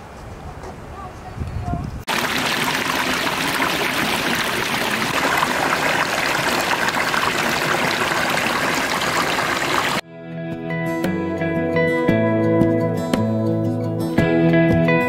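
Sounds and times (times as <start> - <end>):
stream rushing over rocks: 2.1 - 10.0.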